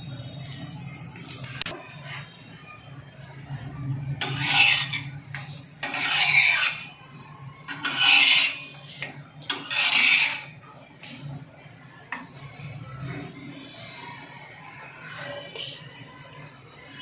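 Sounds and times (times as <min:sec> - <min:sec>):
metal spatula scraping flatbread: 0:04.1 - 0:11.4.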